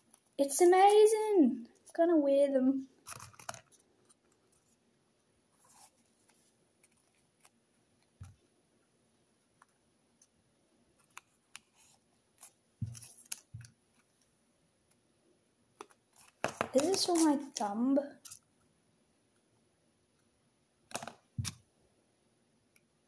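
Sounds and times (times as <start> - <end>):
paper crinkling: 16.2 - 17.6
paper wrapping rustling: 16.2 - 17.6.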